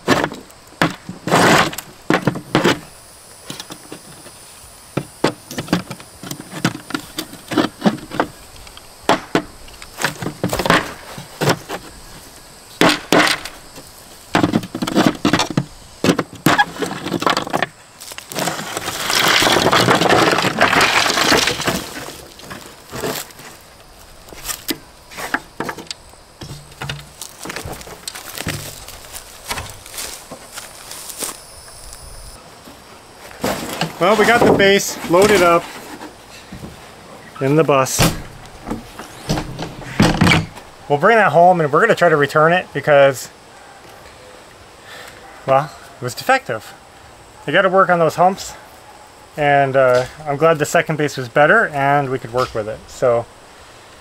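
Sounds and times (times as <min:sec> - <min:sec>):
scraping and crumbling: 0:00.0 - 0:04.4, 0:05.0 - 0:31.6, 0:32.7 - 0:36.8.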